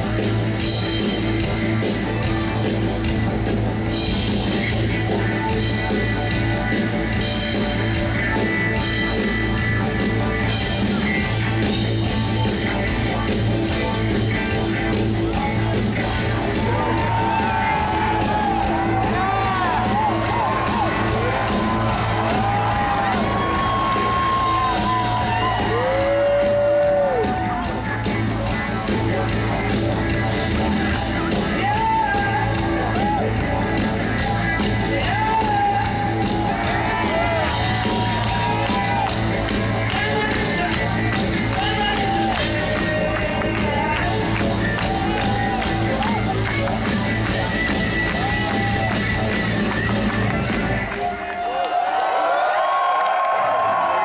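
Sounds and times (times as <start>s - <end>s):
live band playing: 0.0s - 51.3s
crowd whooping: 16.4s - 28.3s, 31.6s - 54.0s.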